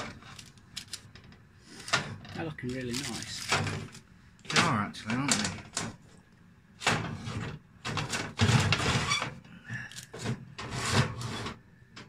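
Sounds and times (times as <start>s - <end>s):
metal tray scraping on oven shelf: 6.8s - 9.4s, 10.2s - 11.6s.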